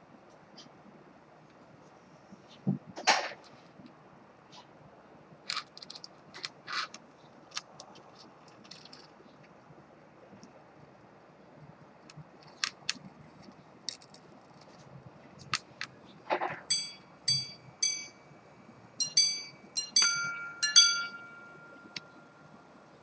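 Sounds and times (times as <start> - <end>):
watch mechanism clicks: 5.2 - 16.0
pocket watch chiming: 16.6 - 23.0.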